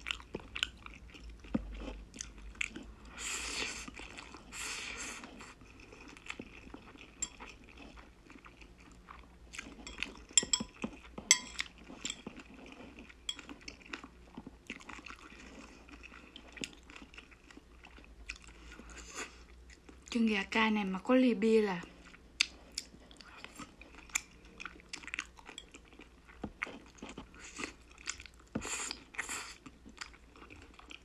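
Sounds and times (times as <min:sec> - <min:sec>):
chewing: 0:00.0 - 0:20.2, 0:21.8 - 0:31.0
chopsticks clicking on plate: 0:11.3 - 0:12.2.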